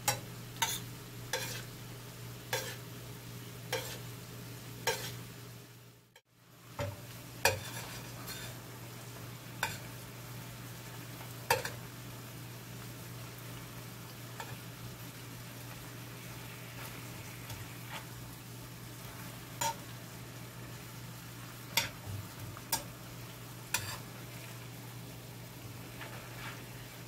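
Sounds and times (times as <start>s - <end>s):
sauce simmering and sizzling: 0.0s - 27.0s
metal spoon clinking on pan: 11.5s - 11.8s, 21.7s - 22.0s.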